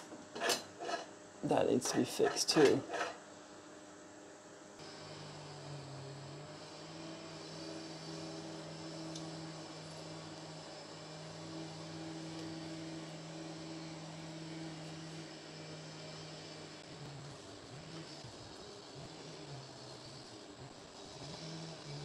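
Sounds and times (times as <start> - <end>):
low mechanical drone: 4.8 - 22.0.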